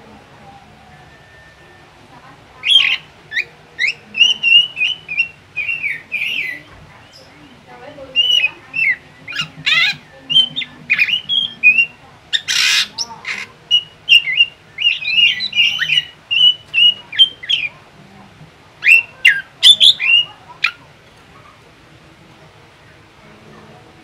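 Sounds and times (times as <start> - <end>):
bird whistling and chirping: 2.6 - 7.3, 8.1 - 13.0, 13.7 - 17.7, 18.8 - 20.4
harsh rasping bird calls: 2.6 - 17.8, 18.8 - 21.6.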